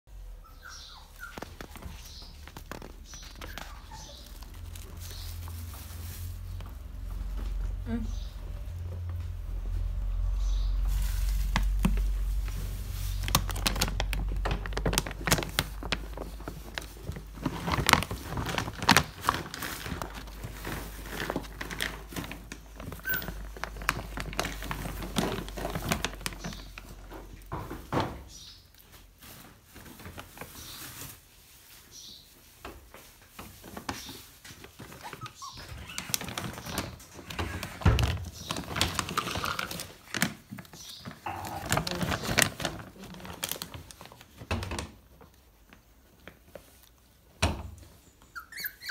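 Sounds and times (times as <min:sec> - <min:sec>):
kibble crunching: 0:00.6 - 0:27.5, 0:34.7 - 0:47.0
plastic bag crinkling: 0:00.6 - 0:27.6, 0:33.2 - 0:47.2
low rumble: 0:04.3 - 0:15.8.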